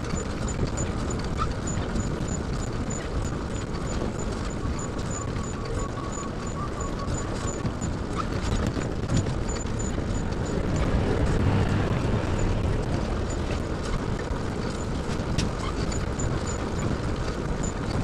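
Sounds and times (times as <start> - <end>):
road rumble: 0.0 - 18.0
small rattles and clicks: 0.0 - 18.0
wind noise: 6.6 - 18.0.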